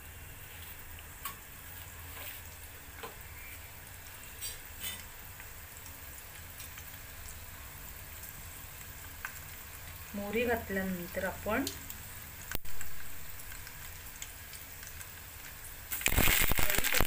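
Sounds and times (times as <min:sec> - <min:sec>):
seeds sizzling in oil: 0:00.0 - 0:17.0
seeds popping: 0:15.9 - 0:17.0.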